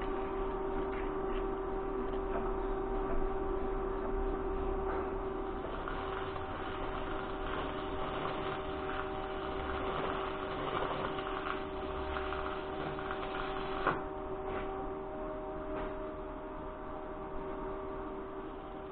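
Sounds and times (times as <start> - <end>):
constant hum: 0.0 - 18.9
welding arc crackling: 5.6 - 14.0.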